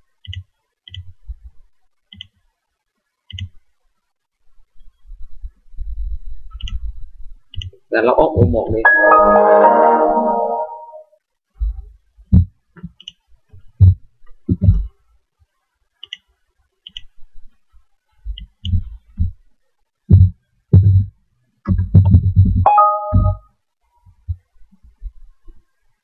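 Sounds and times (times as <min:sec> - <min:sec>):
computer log-off chime: 0:08.9 - 0:11.0, 0:22.7 - 0:23.4
mouse clicks: 0:16.0 - 0:16.3.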